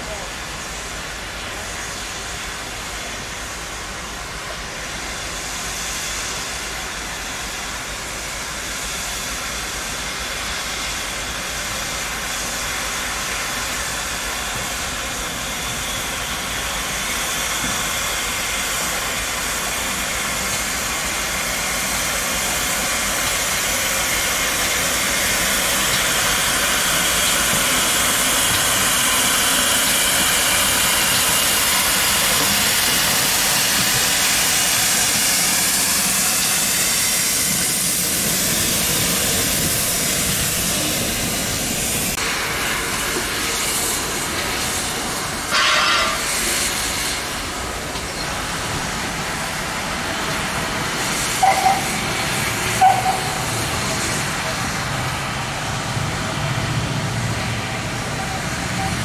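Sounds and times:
steam locomotive hissing: 0.0s - 59.0s.

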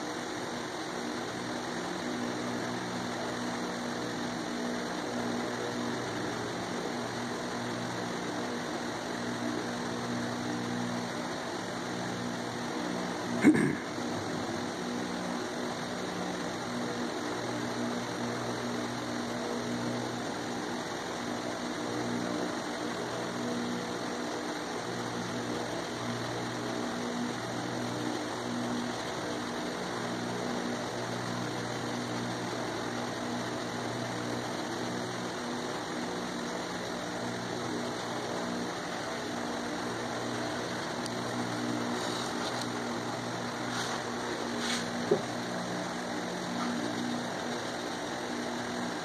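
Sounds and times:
constant hiss: 0.0s - 49.0s
mechanical hum: 0.0s - 49.0s
faint scratchy strokes: 42.0s - 42.6s, 43.7s - 45.0s.

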